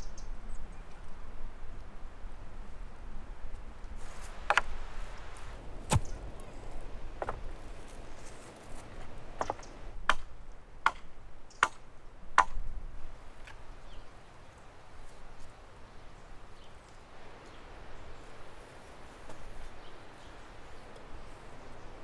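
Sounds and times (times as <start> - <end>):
sharp wooden knocks and chops: 5.8 - 6.2, 9.4 - 11.8, 12.4 - 12.6.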